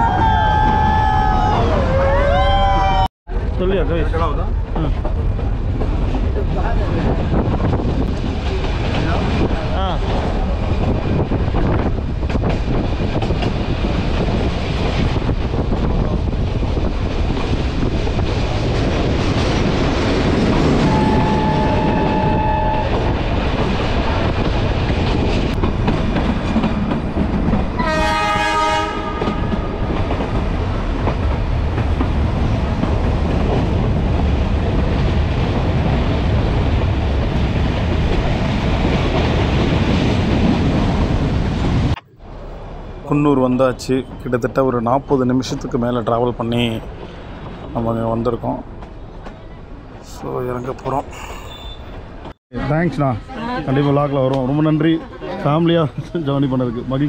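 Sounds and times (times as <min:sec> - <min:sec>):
train wheels on rails: 0:03.3 - 0:52.4
train horn: 0:20.8 - 0:23.2, 0:27.8 - 0:29.8.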